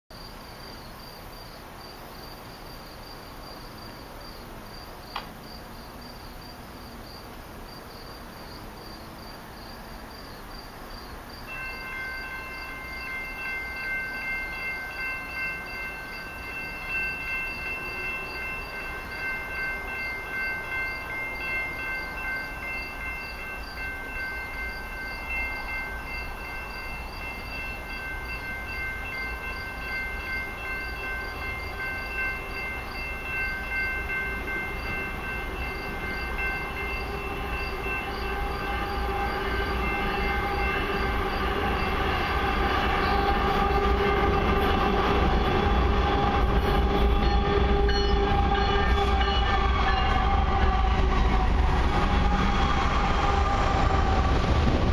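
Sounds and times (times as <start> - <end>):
train rumbling: 0.3 - 54.9
locomotive horn chord: 36.6 - 51.2.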